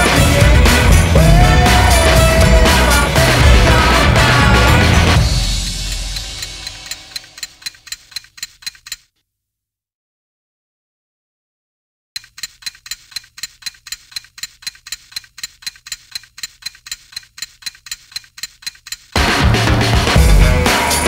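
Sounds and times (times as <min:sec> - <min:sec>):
loud music with drums: 0:00.0 - 0:06.9, 0:19.2 - 0:21.0
metronome clicking: 0:05.6 - 0:09.1, 0:12.2 - 0:19.2.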